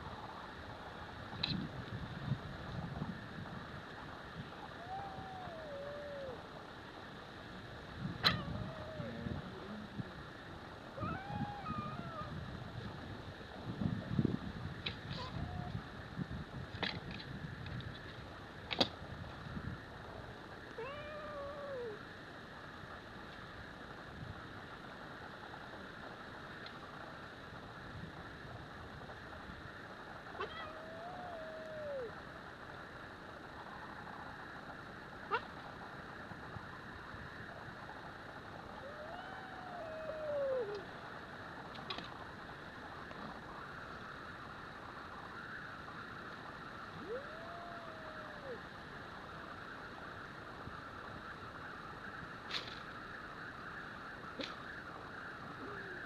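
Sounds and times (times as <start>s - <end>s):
background hiss: 0.0s - 56.0s
cat yowling: 4.8s - 6.4s, 8.2s - 9.7s, 11.0s - 12.4s, 15.1s - 15.8s, 20.8s - 22.0s, 30.4s - 32.2s, 35.3s - 35.5s, 38.8s - 40.8s, 47.0s - 48.6s
cat meowing: 8.2s - 9.4s, 11.0s - 12.3s, 20.8s - 22.0s, 30.4s - 32.1s.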